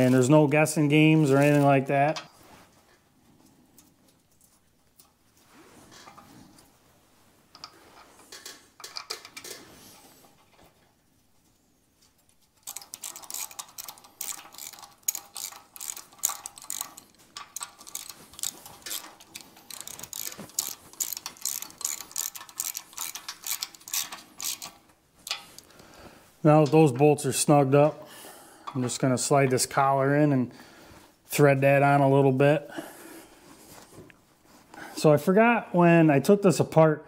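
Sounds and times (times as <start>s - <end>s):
ratchet wrench clicking: 12.6s - 25.7s.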